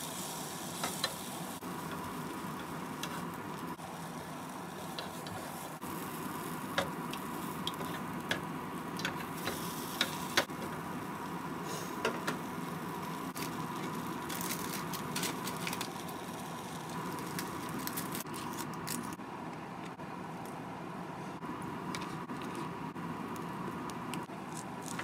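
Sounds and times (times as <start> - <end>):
kitchen hum: 0.0 - 25.0.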